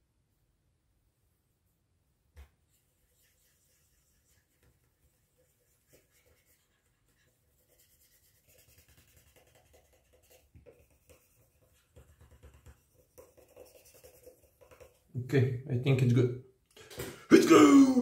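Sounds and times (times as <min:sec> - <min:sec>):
cotton swab scrubbing metal: 0:02.5 - 0:15.2.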